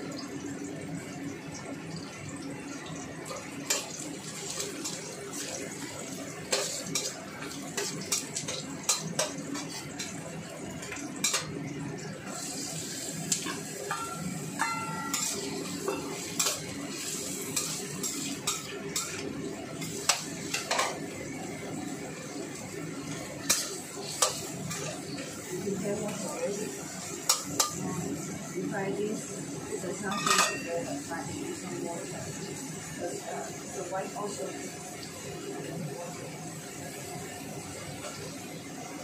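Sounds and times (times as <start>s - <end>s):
food frying hiss: 0.0s - 39.0s
metal spatula scraping a wok: 14.6s - 19.1s.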